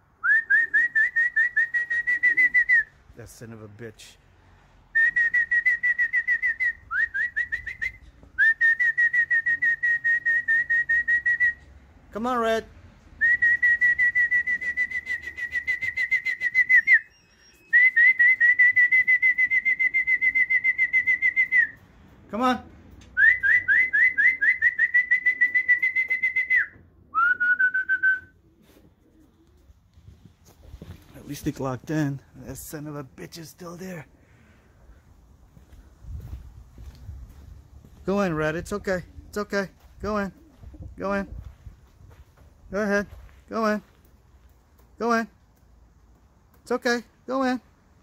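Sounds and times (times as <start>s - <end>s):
person whistling rapid high notes: 13.2s - 21.8s, 23.2s - 28.3s.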